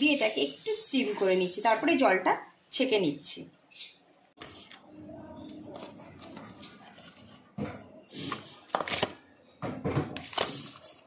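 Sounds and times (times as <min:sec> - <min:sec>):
plastic packets rustling: 0:08.1 - 0:09.3, 0:10.1 - 0:11.0.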